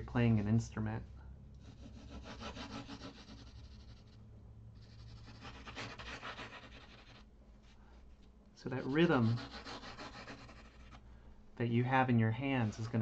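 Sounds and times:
pencil scratching on paper: 0:01.6 - 0:04.1, 0:04.8 - 0:07.2, 0:08.8 - 0:11.0.

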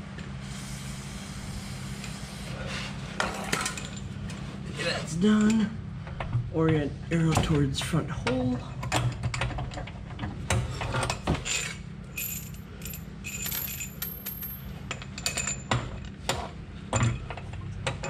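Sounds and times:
high metallic ringing: 0:12.1 - 0:15.7.

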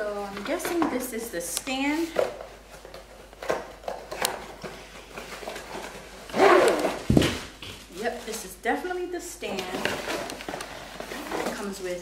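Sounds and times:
cardboard rustling and tapping: 0:06.8 - 0:08.4.

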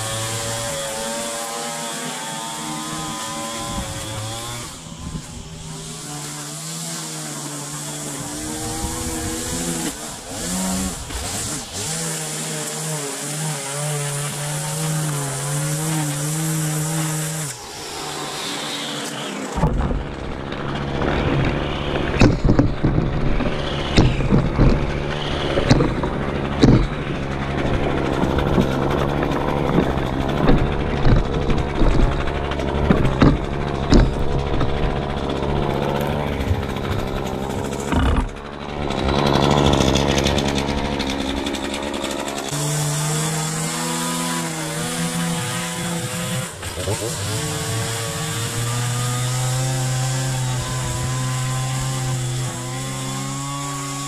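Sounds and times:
string trimmer revving: 0:00.0 - 0:54.0
sharp knocks and rattles: 0:19.5 - 0:47.2.

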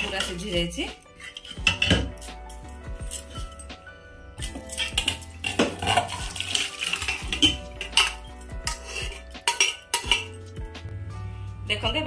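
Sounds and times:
ladle scraping metal pot: 0:00.0 - 0:03.6, 0:04.4 - 0:10.5
pot knocking against steel bowl: 0:01.4 - 0:02.2, 0:09.4 - 0:10.4.

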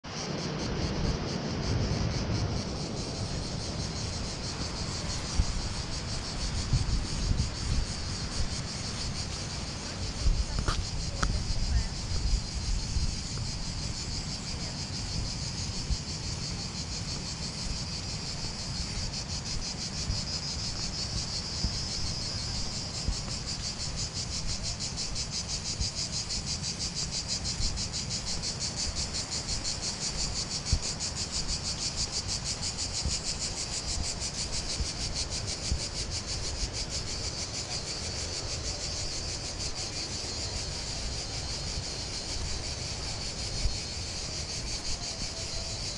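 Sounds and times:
insects trilling: 0:00.0 - 0:45.9.

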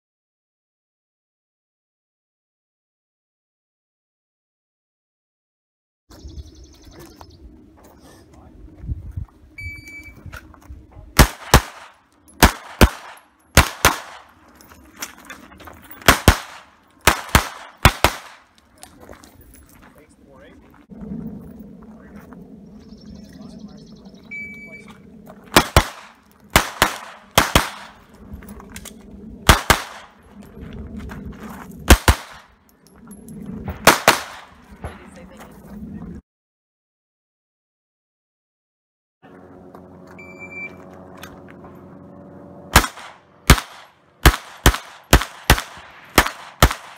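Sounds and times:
pistol shots: 0:11.2 - 0:14.4, 0:16.0 - 0:18.5, 0:25.5 - 0:28.0, 0:29.4 - 0:30.2, 0:31.9 - 0:32.5, 0:33.8 - 0:34.6, 0:42.7 - 0:46.9
shot timer beep: 0:40.2 - 0:40.8.

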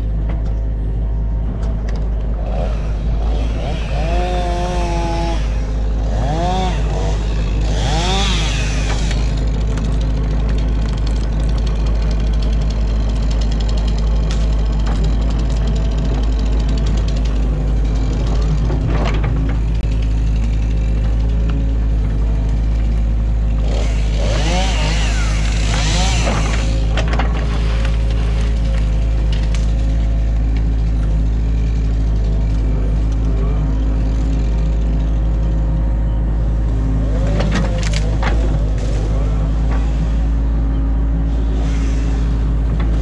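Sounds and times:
rising and falling whines: 0:00.0 - 0:09.6
diesel engine running: 0:00.0 - 0:43.0.

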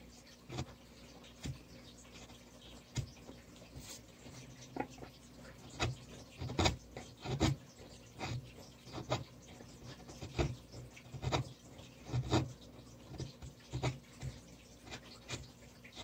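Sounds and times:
chisel scraping into wood: 0:05.7 - 0:07.6, 0:08.2 - 0:15.5.

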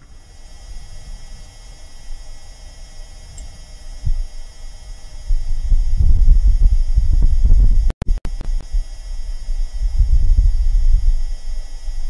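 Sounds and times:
faint electronic hum: 0:00.0 - 0:12.0
gusty wind rumble buffeting microphone: 0:03.6 - 0:12.0.

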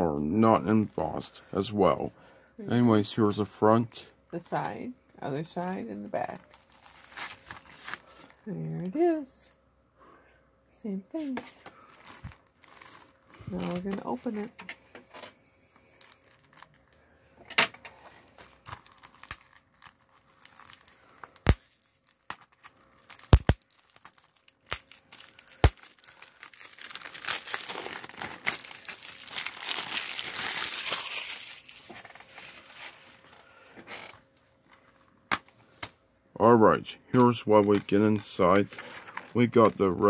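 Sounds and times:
plastic wrap crinkling: 0:05.6 - 0:09.1, 0:11.8 - 0:14.5, 0:15.9 - 0:17.0, 0:17.9 - 0:34.1.

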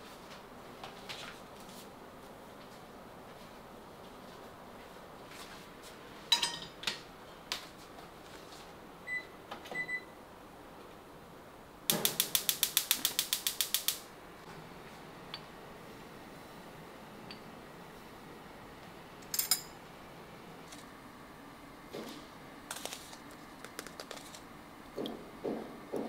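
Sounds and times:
rapid sharp clicks: 0:11.9 - 0:14.1.

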